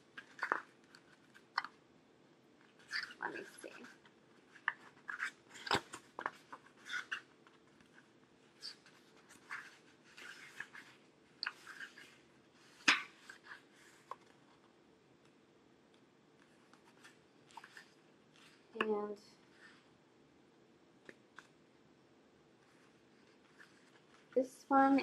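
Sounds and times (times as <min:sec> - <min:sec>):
paper pages rustling and flicking: 0:00.1 - 0:01.7, 0:02.7 - 0:14.7, 0:16.4 - 0:18.7, 0:22.6 - 0:24.4.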